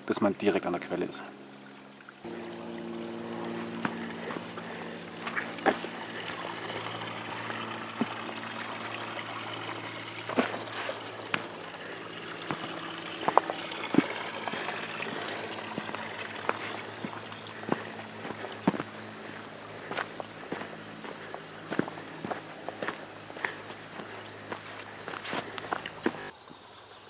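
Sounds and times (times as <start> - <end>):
brook trickling over stones: 1.7 - 26.3
footsteps on rocky path: 3.3 - 8.3, 9.7 - 26.3.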